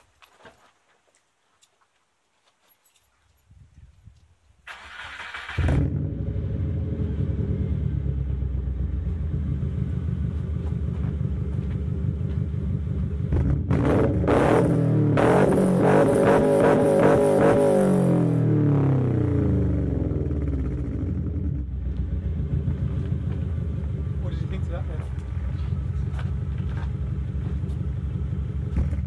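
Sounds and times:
engine starter cranking: 0:04.6 - 0:05.9
car engine idling and revving: 0:04.9 - 0:29.0.

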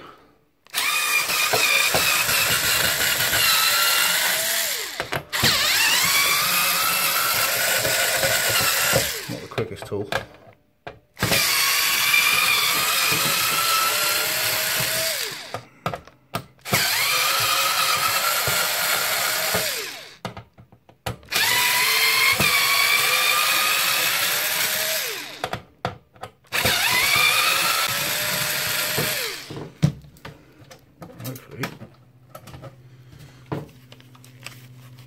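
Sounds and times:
power drill backing out screws: 0:00.7 - 0:10.3, 0:11.2 - 0:20.2, 0:21.3 - 0:25.6, 0:26.5 - 0:29.8.

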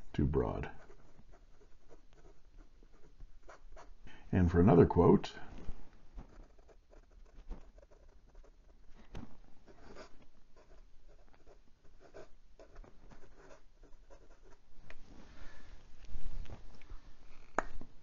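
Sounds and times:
fountain pen scratching on paper: 0:00.6 - 0:04.0, 0:06.3 - 0:08.9, 0:09.7 - 0:14.7.

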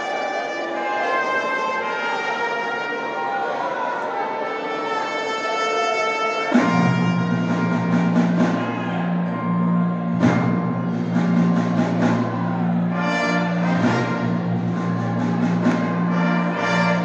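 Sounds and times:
symphony orchestra playing: 0:00.1 - 0:17.0
percussion strokes: 0:06.5 - 0:17.0.

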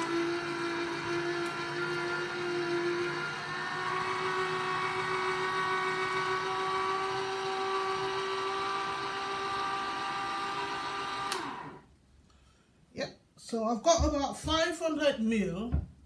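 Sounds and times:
electric juicer motor whine: 0:00.0 - 0:11.9.

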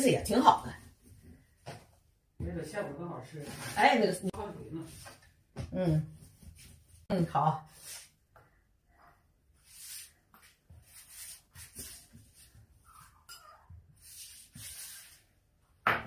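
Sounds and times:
hands rubbing dough on wood: 0:09.6 - 0:13.1.

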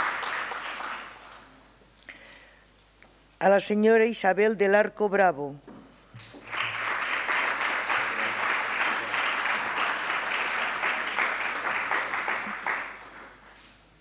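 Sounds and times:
audience applause: 0:00.0 - 0:01.5, 0:06.4 - 0:13.6.

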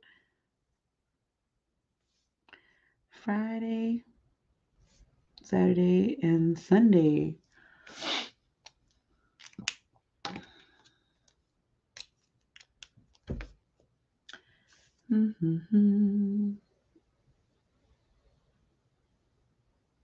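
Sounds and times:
woman humming: 0:15.1 - 0:16.6.

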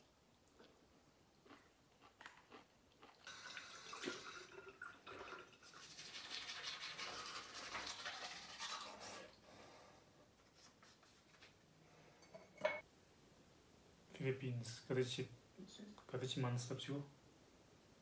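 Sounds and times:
toothbrush scrubbing teeth: 0:05.3 - 0:09.4.

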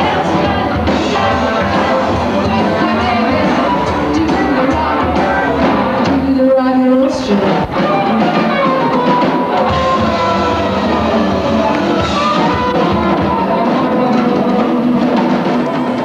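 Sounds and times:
woman singing into a microphone: 0:00.0 - 0:08.9
drum kit: 0:00.0 - 0:16.0
electric guitars: 0:00.0 - 0:16.0.

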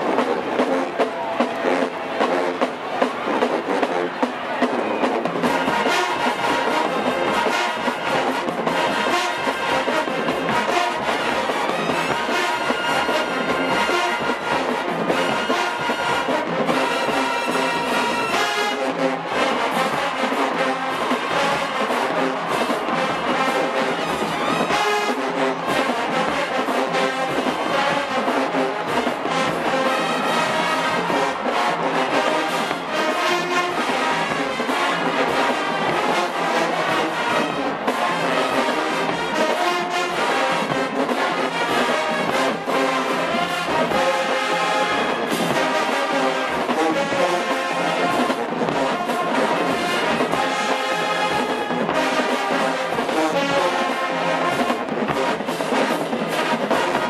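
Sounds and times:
brass horns and sousaphones: 0:00.0 - 0:57.0
drumline beat: 0:00.0 - 0:57.0.

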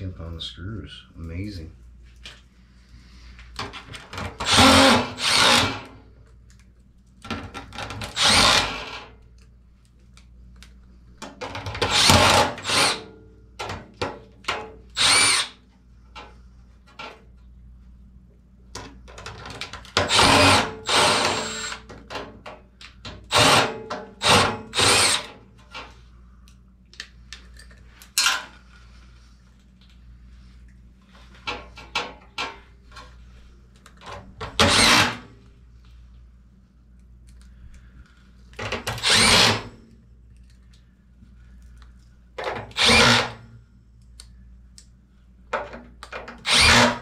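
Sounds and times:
cordless driver running screws: 0:04.4 - 0:05.9, 0:08.1 - 0:09.0, 0:11.9 - 0:13.0, 0:15.0 - 0:15.6, 0:20.1 - 0:21.8, 0:23.3 - 0:25.3, 0:34.6 - 0:35.2, 0:38.9 - 0:39.7, 0:42.7 - 0:43.4, 0:46.4 - 0:47.0.

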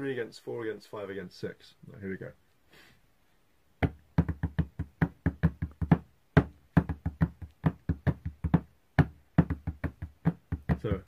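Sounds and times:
fingers tapping on paper-covered desk: 0:03.8 - 0:10.9.

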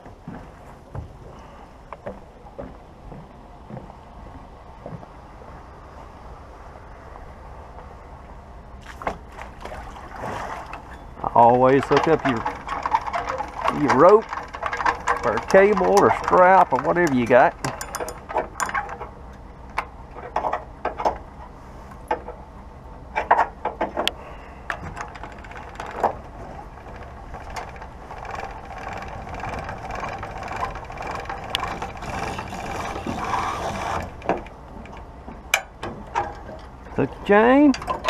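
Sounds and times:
winch ratchet clicking: 0:26.8 - 0:35.7.

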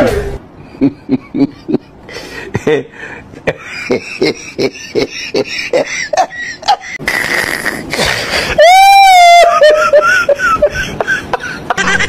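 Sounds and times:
voice making rhythmic sounds: 0:07.0 - 0:08.1.

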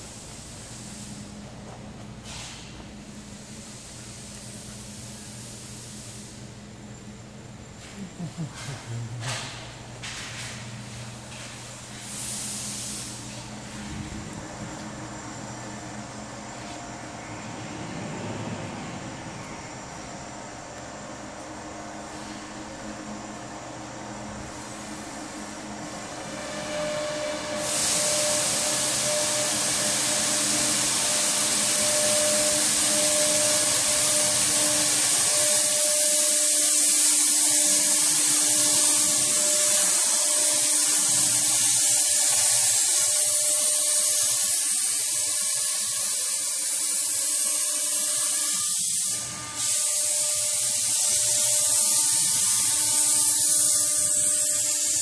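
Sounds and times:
cnc router whining: 0:23.1 - 0:55.0.

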